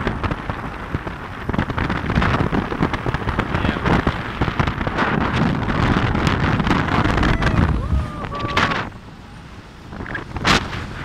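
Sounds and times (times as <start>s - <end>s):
road and engine rumble: 0.0s - 11.0s
wind buffeting microphone: 0.0s - 11.0s.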